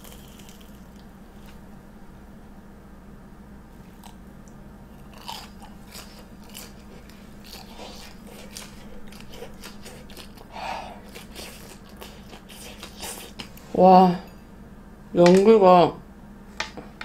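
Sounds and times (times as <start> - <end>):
crunchy chewing: 0.0 - 1.6, 3.8 - 13.7.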